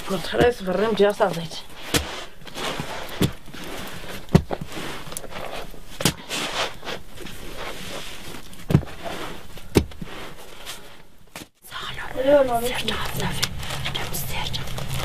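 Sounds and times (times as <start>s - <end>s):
background hiss: 9.0s - 15.0s.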